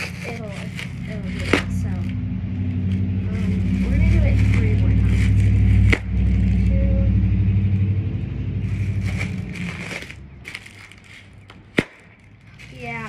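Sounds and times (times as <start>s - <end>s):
vehicle engine hum: 0.0s - 13.0s
plastic packing crinkling: 8.8s - 13.0s.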